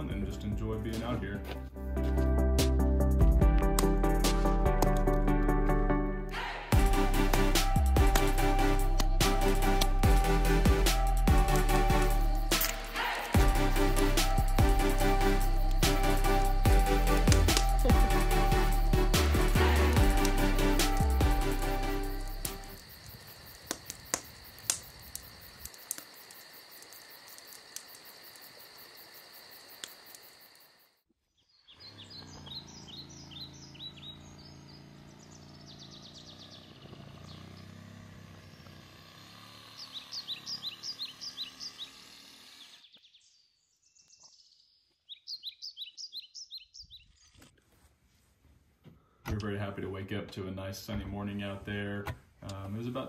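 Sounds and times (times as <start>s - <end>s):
campfire crackling: 6.3s - 30.7s
songbirds chirping and trilling: 6.6s - 28.8s, 31.3s - 47.5s.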